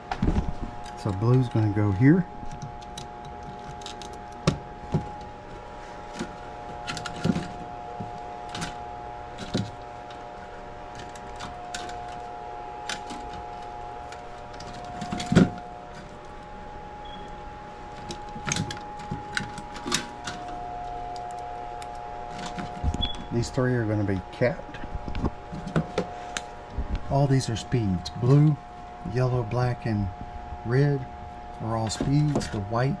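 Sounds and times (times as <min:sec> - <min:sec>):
steady hum: 0:00.0 - 0:33.0
wires and connectors clicking: 0:00.1 - 0:23.7, 0:31.5 - 0:33.0.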